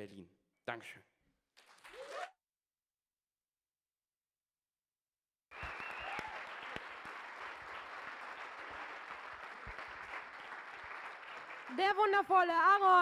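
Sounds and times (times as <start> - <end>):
audience applause: 5.5 - 12.3.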